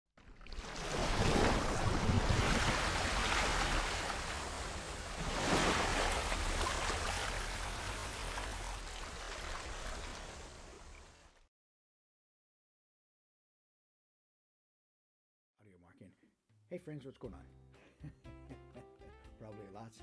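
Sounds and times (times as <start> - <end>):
rushing splashing water: 0.2 - 11.4.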